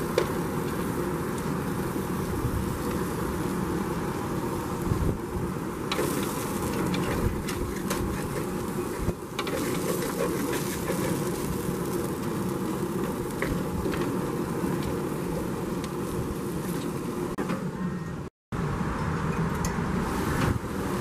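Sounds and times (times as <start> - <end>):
food sizzling in a pan: 5.9 - 17.0
wooden spoon scraping a pan: 5.9 - 17.0.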